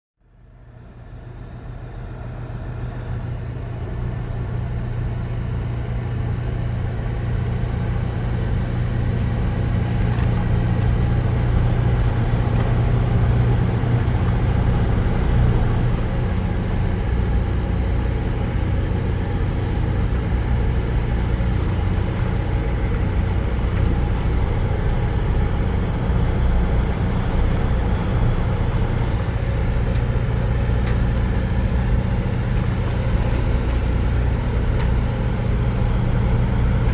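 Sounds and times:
diesel engine running: 0.2s - 36.9s.

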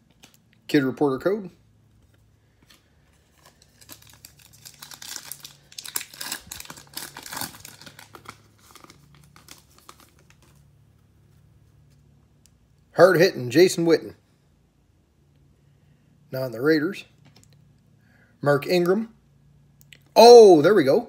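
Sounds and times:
foil wrapper tearing and crinkling: 3.3s - 10.6s.

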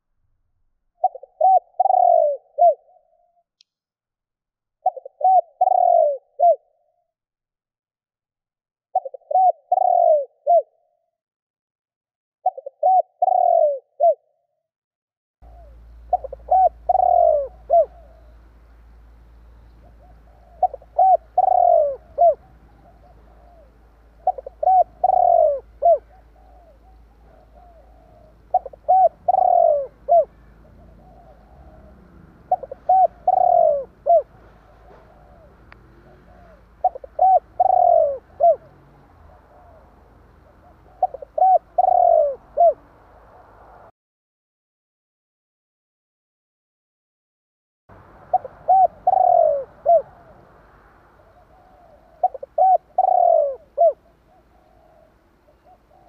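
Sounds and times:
dove cooing: 1.0s - 3.3s, 4.8s - 6.9s, 9.0s - 10.8s, 12.4s - 14.3s, 15.4s - 18.6s, 19.6s - 43.9s, 48.2s - 56.0s.

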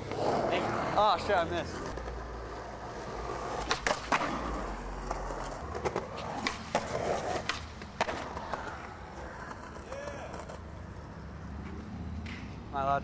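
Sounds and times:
skateboard wheels rolling on concrete: 0.0s - 13.0s
skateboard clacks: 3.4s - 12.4s.

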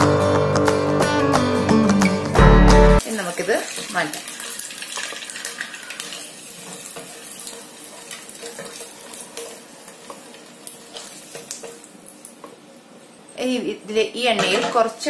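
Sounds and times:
eggs sizzling in hot oil: 3.0s - 12.6s.

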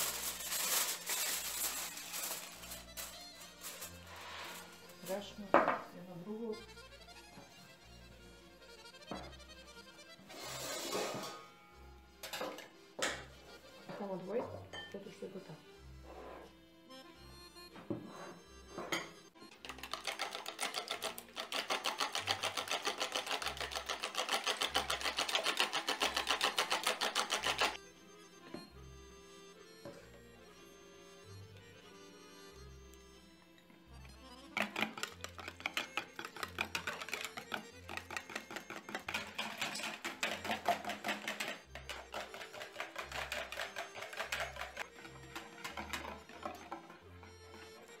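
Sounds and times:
whisk beating eggs in a bowl: 19.6s - 27.8s, 34.6s - 47.0s.

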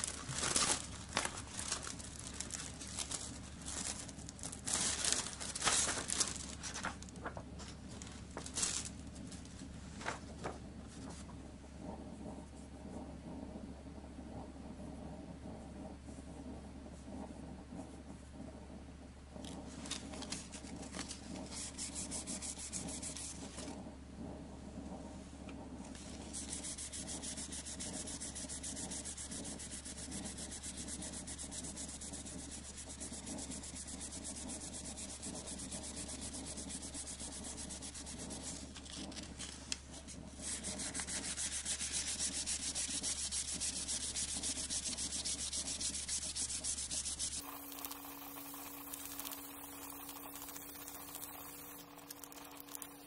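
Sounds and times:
sandpaper rubbing on wood: 21.5s - 23.4s, 26.1s - 39.2s, 40.4s - 53.0s.

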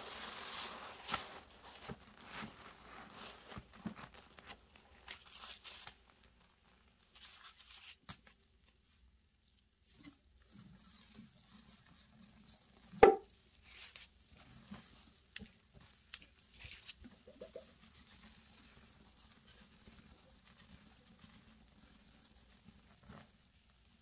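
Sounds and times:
sharp knock: 13.0s - 13.3s.

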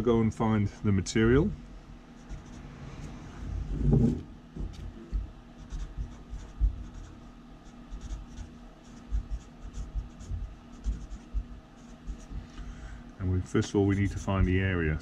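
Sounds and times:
marker pen scratching on paper: 2.2s - 3.1s, 4.8s - 12.4s, 13.6s - 14.7s
low thump: 3.4s - 5.3s
hand bumping desk: 3.7s - 5.3s.

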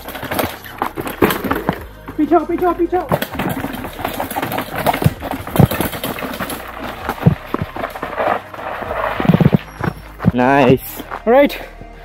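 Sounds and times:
tyres thumping down steps: 0.0s - 8.2s
bike rattling: 0.0s - 11.4s.

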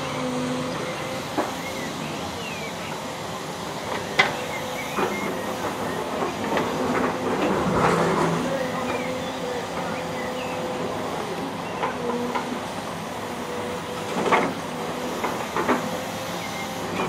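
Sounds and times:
excavator engine and hydraulics: 0.0s - 17.0s.

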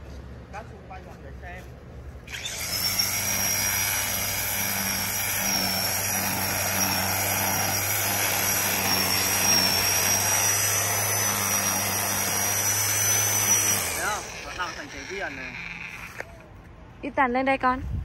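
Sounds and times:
electric string trimmer running: 2.2s - 16.4s.

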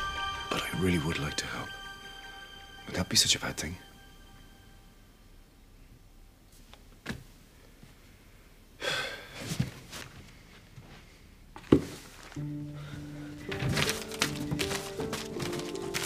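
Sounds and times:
soft music tones: 0.0s - 6.4s, 12.4s - 16.0s
person sighing heavily: 8.8s - 9.4s.

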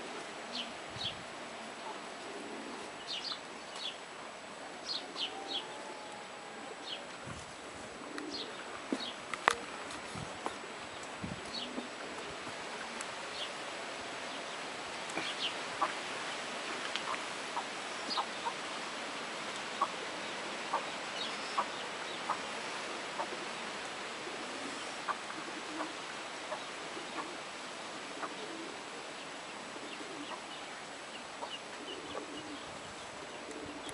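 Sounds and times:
steady outdoor hiss: 0.0s - 33.9s
chickens clucking: 15.1s - 16.0s, 19.8s - 20.0s, 20.7s - 20.9s, 24.2s - 27.4s, 28.2s - 28.7s, 29.8s - 30.6s, 31.4s - 32.6s.

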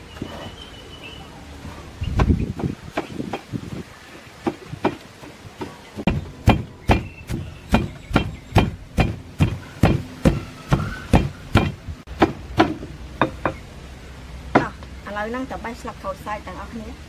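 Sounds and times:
pestle pounding in stone mortar: 5.6s - 13.6s.

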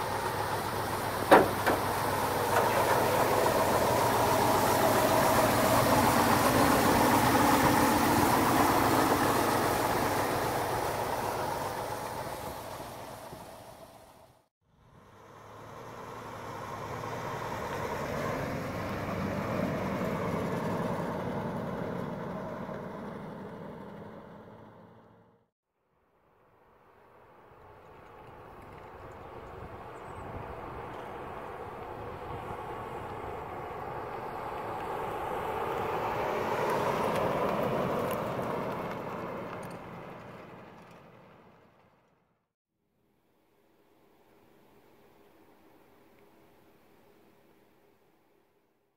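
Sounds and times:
pickup truck driving past: 0.0s - 25.4s, 29.4s - 42.2s.

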